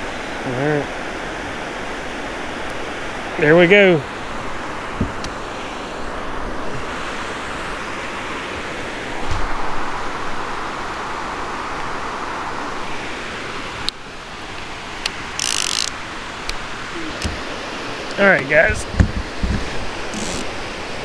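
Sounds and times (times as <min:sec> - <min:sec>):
flowing river water: 0:00.0 - 0:21.0
fishing reel line whirring: 0:15.4 - 0:16.0, 0:20.1 - 0:20.6.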